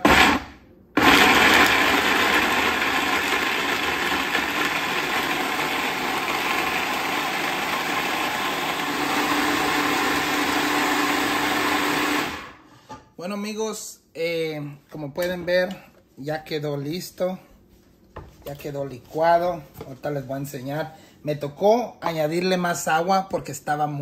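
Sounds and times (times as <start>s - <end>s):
electric blender running: 0.0s - 12.6s.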